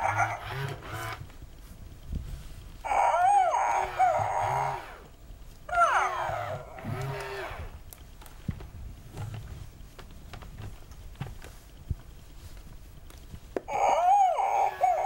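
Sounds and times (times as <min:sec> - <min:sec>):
toy dog puppy yips: 0:00.0 - 0:00.5, 0:05.7 - 0:06.7, 0:13.7 - 0:15.0
low hum: 0:00.0 - 0:15.0.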